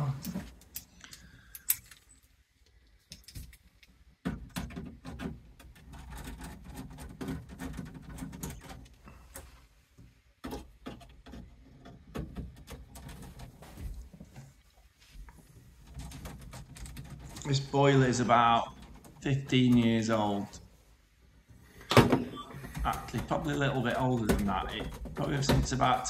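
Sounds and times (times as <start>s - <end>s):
screwdriver clicks and metallic rattles: 0.3s - 2.3s
rustling: 11.1s - 21.9s.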